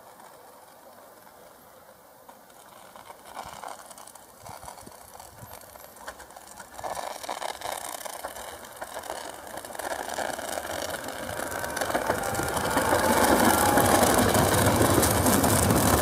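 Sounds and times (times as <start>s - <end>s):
electric train approaching: 8.2s - 16.0s.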